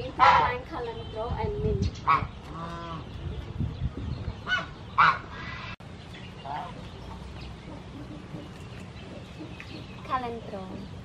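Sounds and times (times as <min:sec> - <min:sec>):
geese honking: 0:00.0 - 0:00.7, 0:02.0 - 0:03.3, 0:04.4 - 0:09.2.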